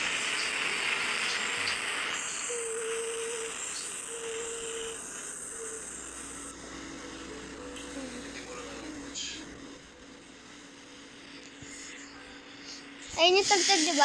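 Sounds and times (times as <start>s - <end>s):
insects chirring: 0.0s - 6.6s
faint held tone: 2.3s - 13.0s.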